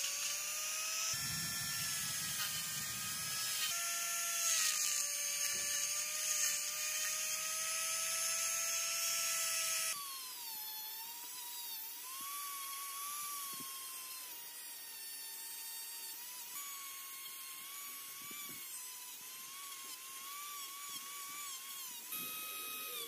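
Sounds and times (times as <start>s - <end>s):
rotary tool whining grinding metal: 0.0s - 23.0s.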